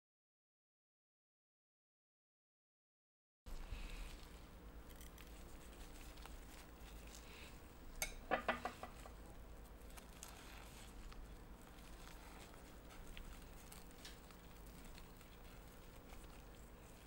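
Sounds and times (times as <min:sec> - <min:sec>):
soft handling of wet skins: 0:03.5 - 0:17.0
kitchenware clinking and knocking: 0:08.0 - 0:09.1.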